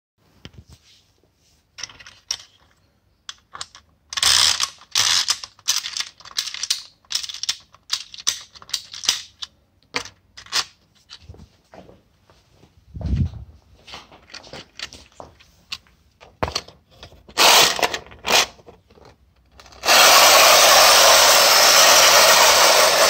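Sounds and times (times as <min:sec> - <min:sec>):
ratchet clicking of toy winding: 0:04.1 - 0:09.4.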